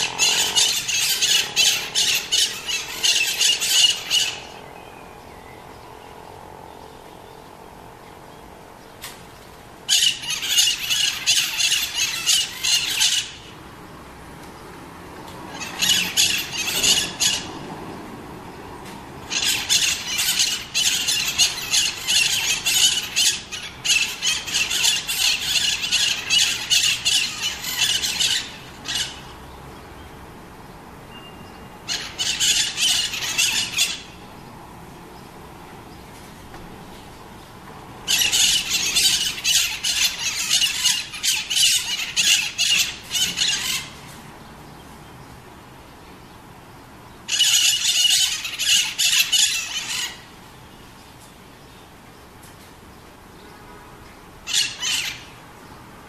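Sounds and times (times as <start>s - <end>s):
parakeets screeching: 0.0s - 4.7s, 9.9s - 13.6s, 15.5s - 17.9s, 19.2s - 29.6s, 31.4s - 34.3s, 38.0s - 44.2s, 47.3s - 50.4s, 54.4s - 55.4s.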